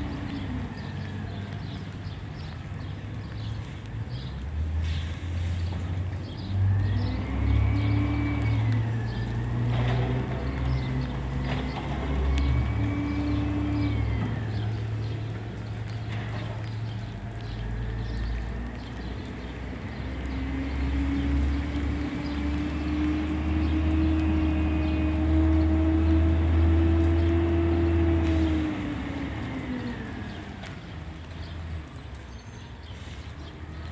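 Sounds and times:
diesel engine running: 0:19.3 - 0:31.3.

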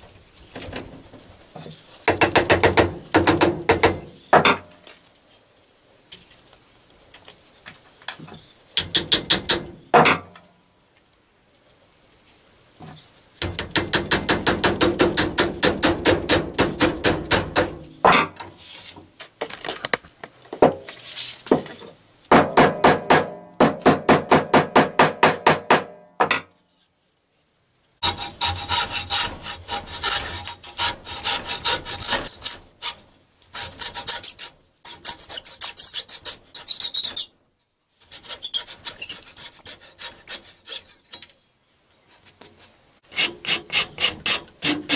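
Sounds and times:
hacksaw cutting wood: 0:28.0 - 0:33.0, 0:33.6 - 0:34.5, 0:38.1 - 0:41.0, 0:43.1 - 0:44.9.

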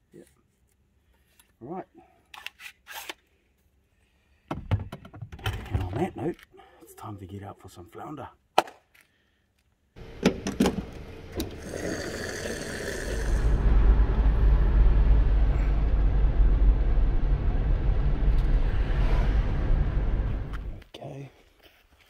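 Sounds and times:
road and engine rumble: 0:10.0 - 0:20.8.

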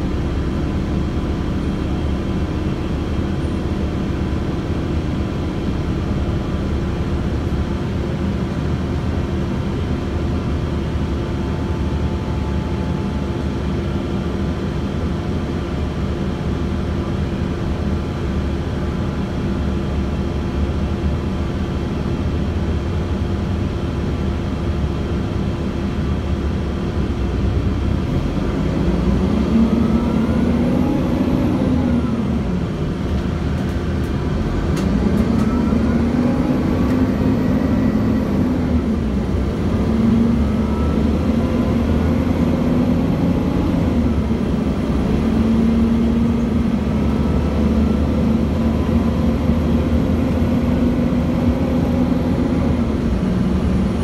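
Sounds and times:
bus diesel engine running: 0:00.0 - 0:54.0.

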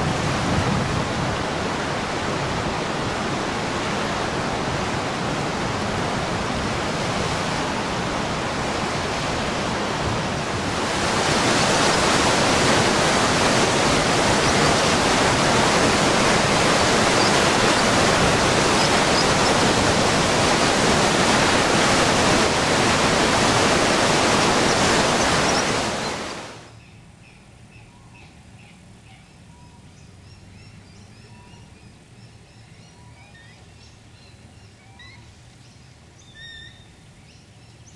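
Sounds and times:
floodwater rushing: 0:00.0 - 0:26.7.

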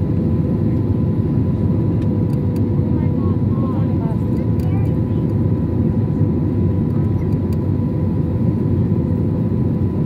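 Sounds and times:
aircraft engines and airflow roar: 0:00.0 - 0:10.0.

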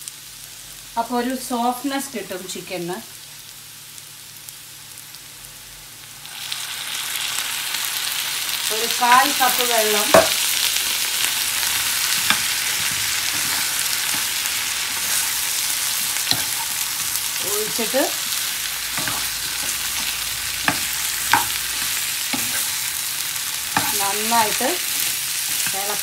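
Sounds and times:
chicken frying in a pan: 0:00.0 - 0:26.0
spatula scraping a pan: 0:11.2 - 0:26.0.

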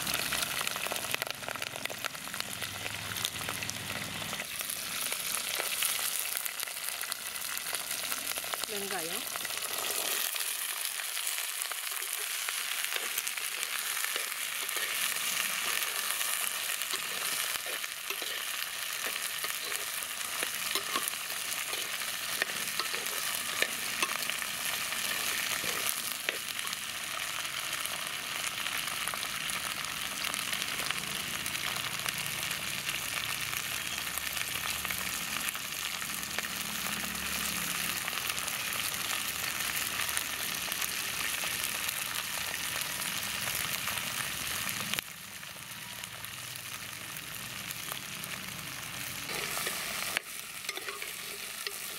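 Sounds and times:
onions and chillies sizzling in oil: 0:00.0 - 0:51.9
ladle tapping and scraping a pot: 0:49.3 - 0:51.9.

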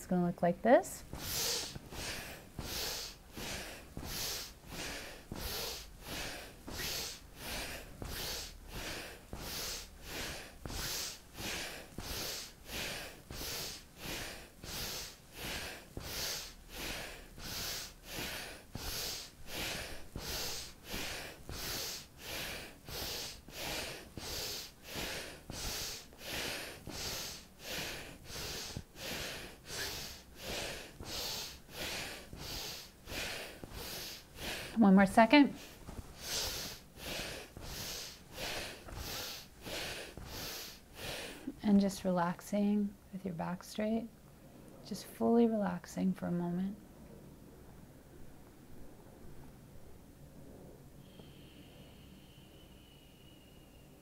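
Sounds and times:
woman breathing rapidly through nose: 0:01.0 - 0:41.6, 0:51.0 - 0:53.4.

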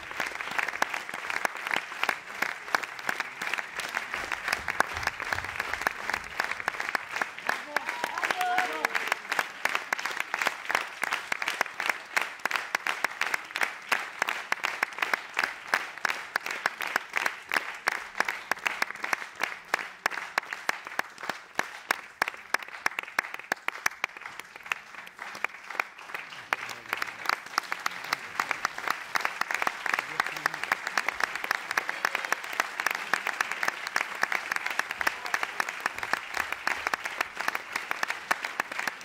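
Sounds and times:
audience applauding: 0:00.0 - 0:39.0.

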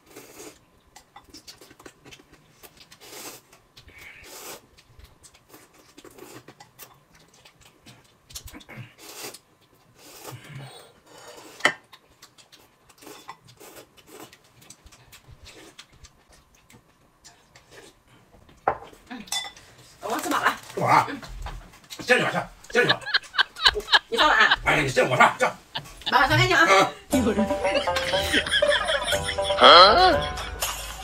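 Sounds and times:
noodles being slurped: 0:01.3 - 0:15.9.

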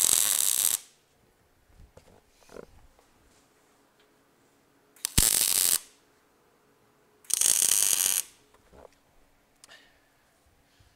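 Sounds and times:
arc welding crackle: 0:00.0 - 0:01.0, 0:05.0 - 0:06.0, 0:07.3 - 0:08.4.

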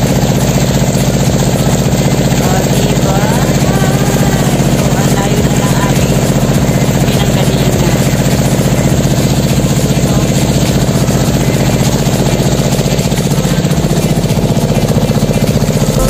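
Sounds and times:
motorboat engine droning: 0:00.0 - 0:16.0.

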